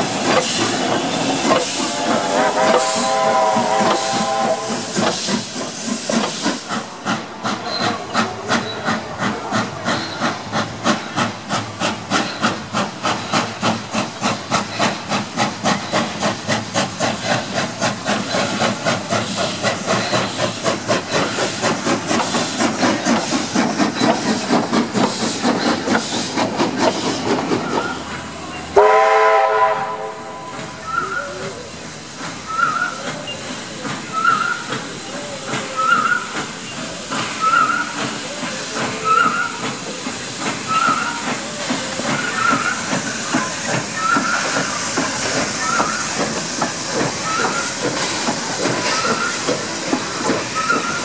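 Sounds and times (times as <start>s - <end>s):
steam locomotive chuffing: 0.0s - 51.0s
steam whistle: 1.9s - 5.0s, 28.8s - 31.3s.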